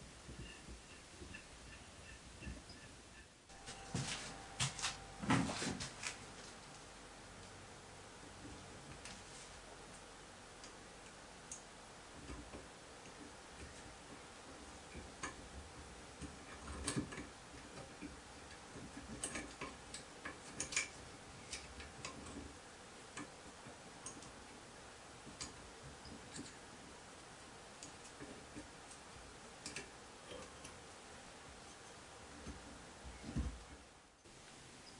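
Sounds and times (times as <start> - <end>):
small metallic clicks and taps: 16.2 - 22.5, 29.6 - 30.8.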